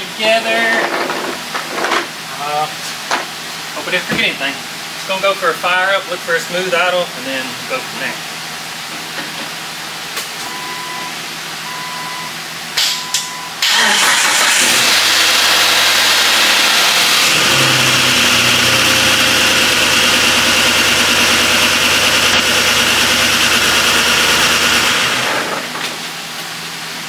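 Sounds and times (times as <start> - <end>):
short beeps: 10.5 - 13.6
car engine idling: 13.6 - 26.3.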